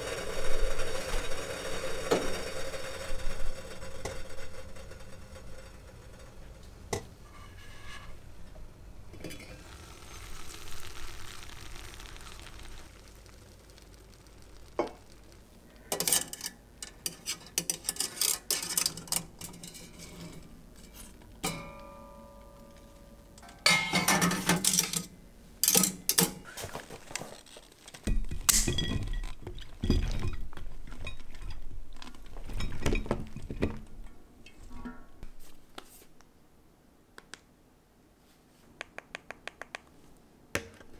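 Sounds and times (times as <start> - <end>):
pea pods rattling into dish: 9.6 - 19.4.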